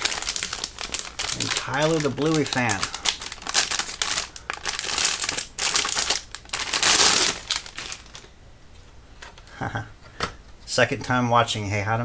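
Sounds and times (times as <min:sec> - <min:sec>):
packaging crinkling and rustling: 0:00.0 - 0:08.3.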